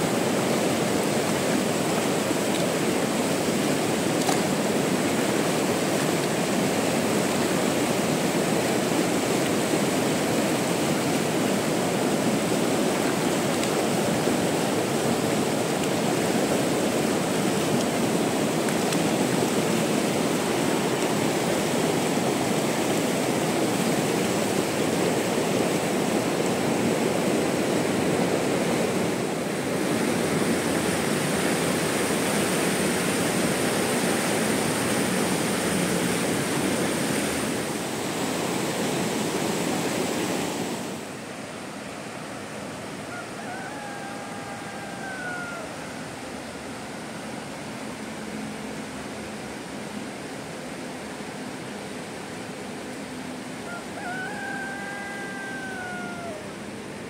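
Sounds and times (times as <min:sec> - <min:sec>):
cat meowing: 0:54.4 - 0:56.5.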